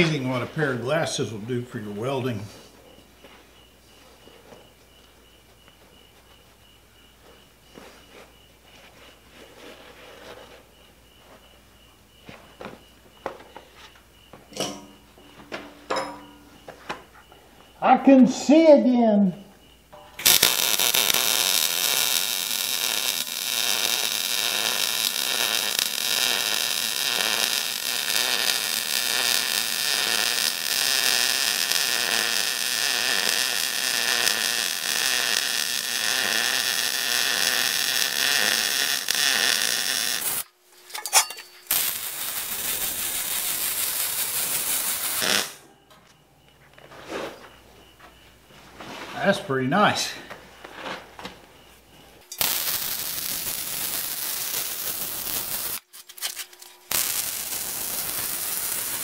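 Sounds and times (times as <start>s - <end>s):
faint handling sounds: 7.2s - 14.1s, 45.9s - 52.3s
welding arc crackling: 20.2s - 45.6s, 52.3s - 59.0s.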